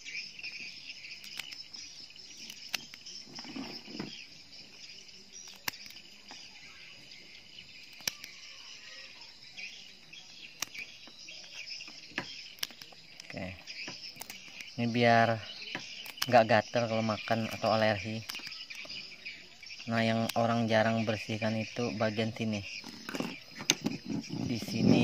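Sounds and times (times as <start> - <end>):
high insect chorus: 0.0 - 25.0
scissors snipping: 1.2 - 1.6, 5.4 - 6.0, 7.9 - 8.4.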